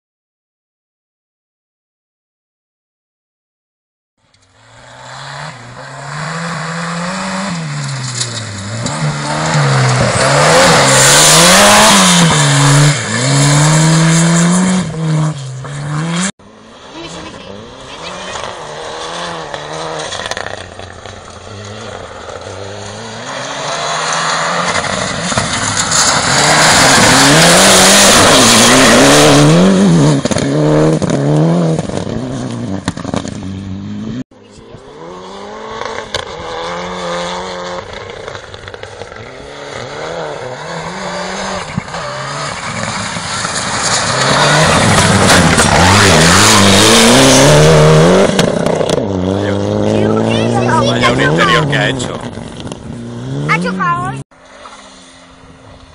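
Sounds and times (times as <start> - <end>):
rally car engine revving: 4.4 - 55.9.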